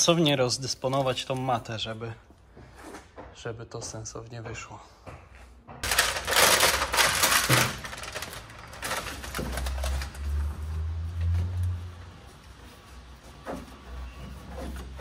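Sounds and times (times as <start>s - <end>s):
foil mat crinkling: 5.8s - 10.4s.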